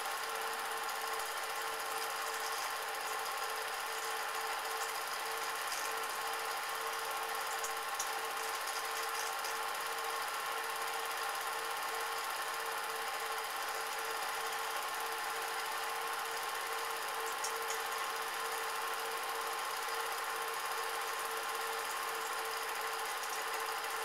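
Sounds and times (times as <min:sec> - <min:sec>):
film projector whirring: 0:00.0 - 0:24.0.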